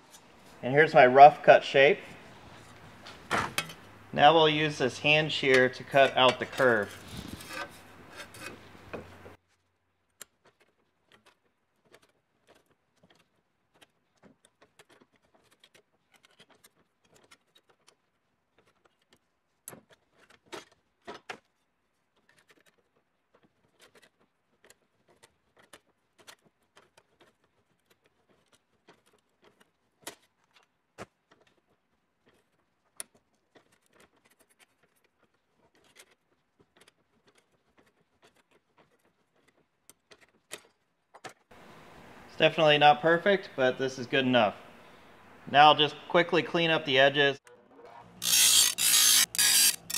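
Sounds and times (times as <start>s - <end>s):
hand shear cutting sheet steel: 4.4s - 8.7s, 48.0s - 49.9s.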